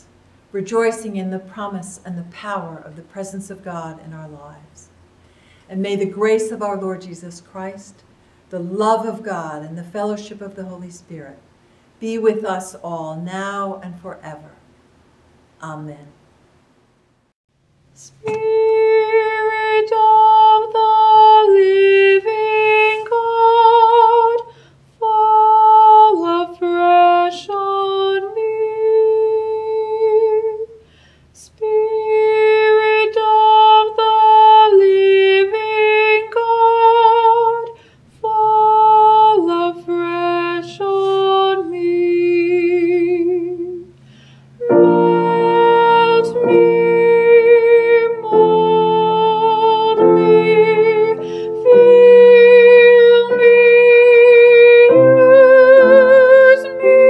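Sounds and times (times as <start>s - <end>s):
fuller lower chords: 44.6s - 57.0s
slow solo melody with vibrato: 44.6s - 57.0s.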